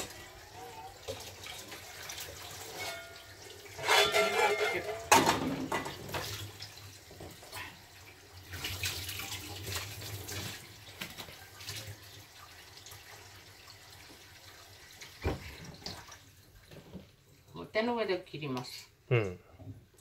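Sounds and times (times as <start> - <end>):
water running at sink: 0.0 - 17.9
kitchenware clicks and knocks: 3.8 - 6.2.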